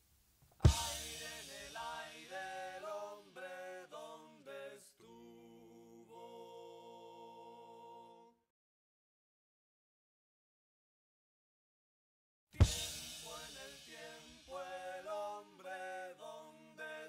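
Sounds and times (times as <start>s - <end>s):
drum and cymbal hit: 0.6s - 3.6s, 12.6s - 14.8s
voices singing: 0.6s - 8.4s, 12.6s - 17.0s.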